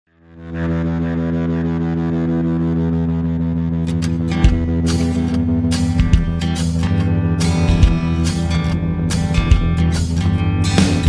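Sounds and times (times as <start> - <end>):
intro music with quick beat: 3.8 - 11.0.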